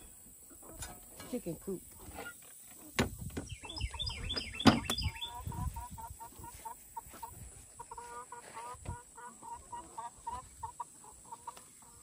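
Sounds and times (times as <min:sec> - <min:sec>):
hens clucking: 0:00.0 - 0:12.0
high chirping calls: 0:03.4 - 0:06.1.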